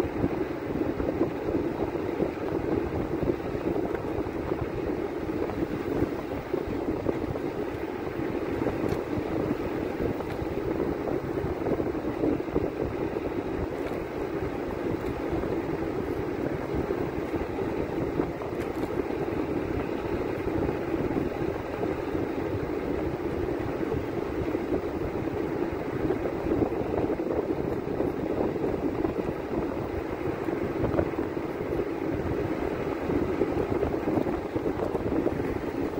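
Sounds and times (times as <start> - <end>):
low buffeting: 0.0 - 35.9
vehicle engine and road rumble: 0.0 - 35.9.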